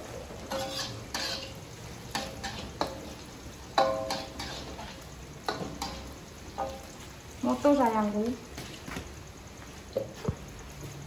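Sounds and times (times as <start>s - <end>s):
faint sizzle: 0.0s - 11.0s
metal spatula clanking on wok: 0.4s - 6.9s.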